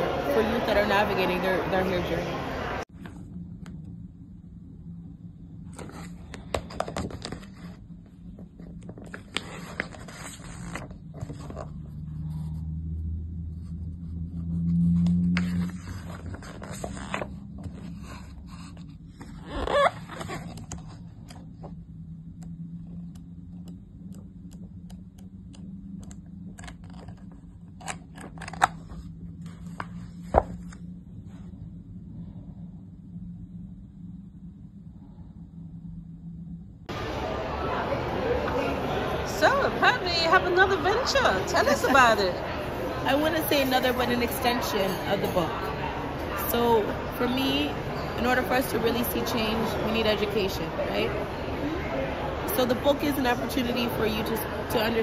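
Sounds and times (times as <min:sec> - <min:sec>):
steady low hum: 0:00.0 - 0:55.0
book pages rustling: 0:05.7 - 0:12.8, 0:13.5 - 0:21.8, 0:26.0 - 0:31.6.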